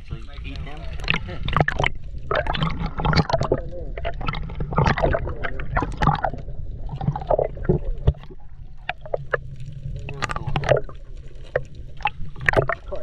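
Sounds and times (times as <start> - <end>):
water sloshing and splashing: 0.0 - 13.0.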